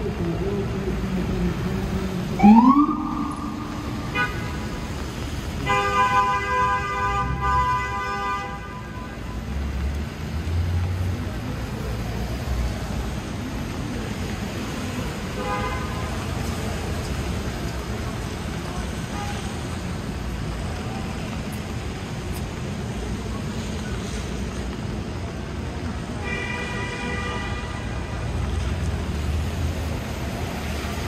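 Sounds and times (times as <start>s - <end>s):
city traffic noise: 0.0s - 31.0s
emergency siren whooping: 2.3s - 4.4s
vehicle horn blast: 3.9s - 4.8s.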